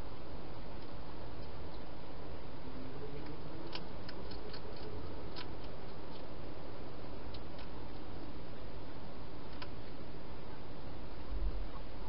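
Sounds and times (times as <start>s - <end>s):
steady hiss: 0.0s - 12.0s
hedgehog chewing clicks: 3.2s - 6.3s, 7.3s - 7.8s.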